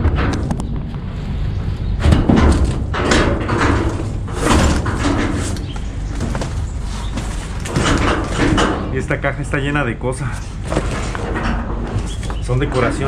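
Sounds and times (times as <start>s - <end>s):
thuds against metal dumpster: 2.0s - 6.7s, 7.7s - 9.0s
cardboard rustling and scraping: 4.0s - 8.6s, 10.2s - 13.0s.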